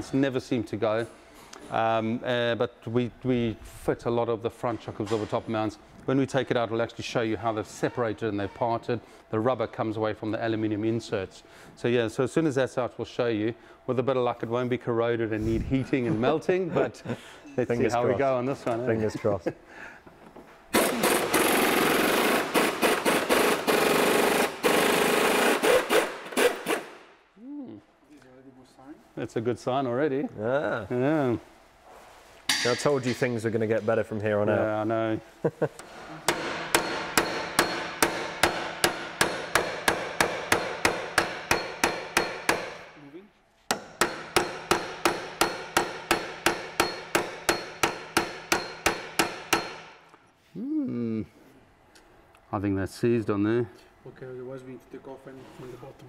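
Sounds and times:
pneumatic impact wrench rattling: 0:20.7 - 0:27.0
hammer striking metal: 0:32.5 - 0:33.3, 0:36.3 - 0:42.9, 0:43.7 - 0:50.0.

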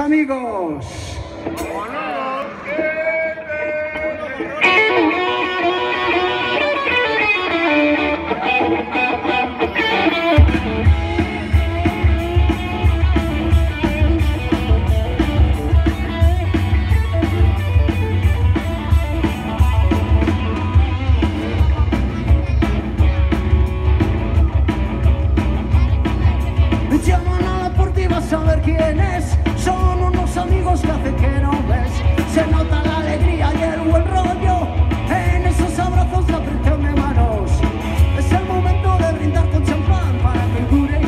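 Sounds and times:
bass guitar: 0:00.8 - 0:41.0
electric guitar with pitch bends: 0:00.8 - 0:41.0
drum kit: 0:00.9 - 0:02.0, 0:09.8 - 0:41.0.

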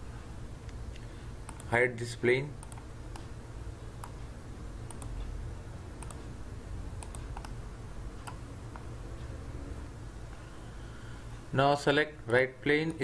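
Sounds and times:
low steady hum: 0:00.0 - 0:13.0
computer mouse clicks: 0:00.6 - 0:01.8, 0:02.6 - 0:03.3, 0:04.9 - 0:05.3, 0:06.0 - 0:06.3, 0:07.0 - 0:07.6.

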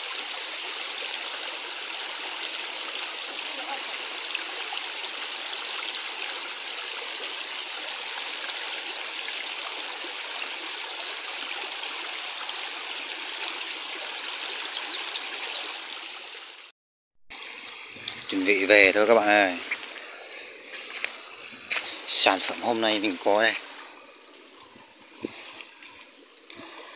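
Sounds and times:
stream running over stones: 0:00.0 - 0:16.7, 0:17.3 - 0:26.9
high falling chirps: 0:14.6 - 0:15.7.

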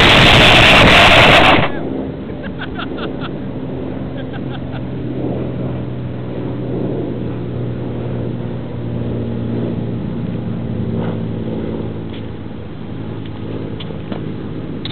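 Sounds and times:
low mechanical hum: 0:00.0 - 0:14.9.

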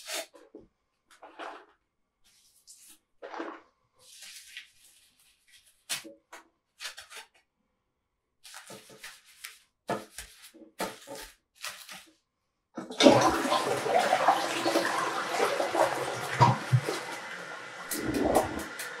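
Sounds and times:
toilet brush scrubbing: 0:00.0 - 0:00.6, 0:01.2 - 0:06.1, 0:12.9 - 0:19.0
toilet flushing: 0:12.8 - 0:19.0.

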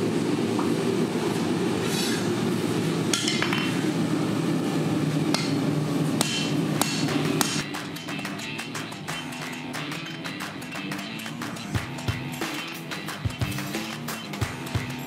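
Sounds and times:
hammer ringing on anvil: 0:06.2 - 0:07.6.

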